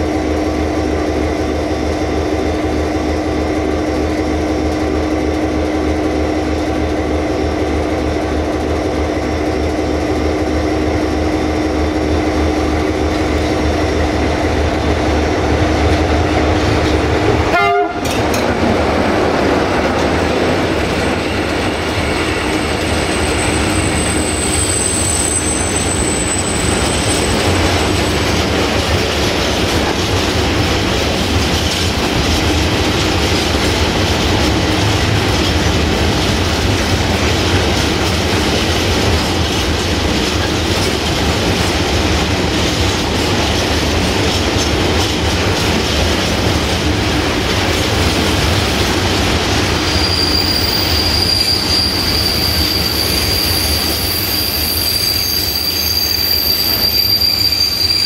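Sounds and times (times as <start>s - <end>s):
wheels clacking over rail joints: 14.8s - 23.0s, 26.6s - 50.1s
high wheel squeal: 21.2s - 28.2s, 49.8s - 58.0s.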